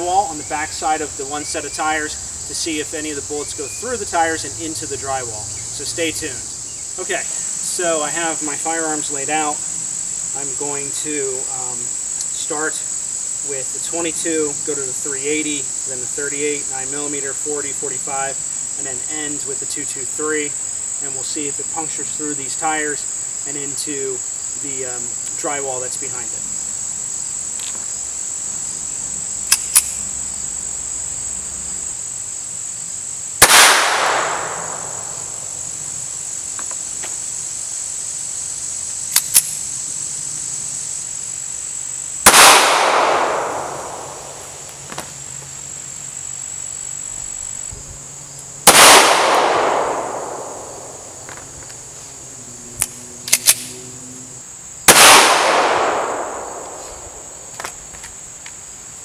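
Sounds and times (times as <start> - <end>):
insect drone: 0.0 - 59.0
handgun shots echoing: 33.4 - 35.2, 42.2 - 44.4, 48.7 - 50.9, 54.9 - 56.8.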